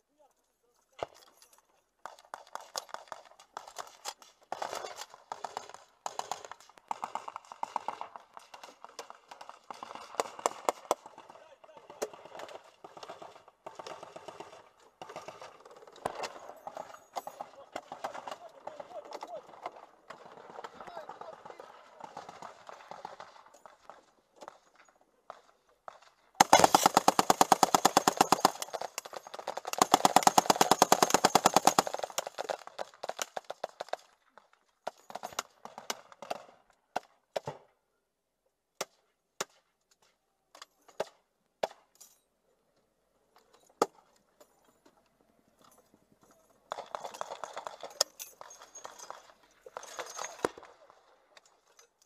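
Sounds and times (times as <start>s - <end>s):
machine gun firing: 4.5s - 11.3s, 12.0s - 16.9s, 26.4s - 34.0s.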